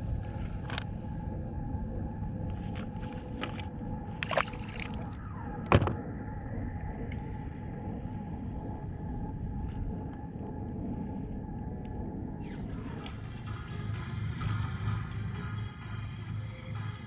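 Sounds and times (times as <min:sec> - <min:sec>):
water rumbling against kayak: 0:02.2 - 0:07.4.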